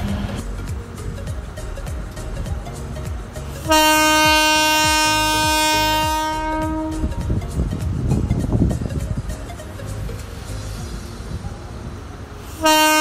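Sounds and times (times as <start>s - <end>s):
train horn blast: 3.6s - 7.3s, 12.4s - 13.0s.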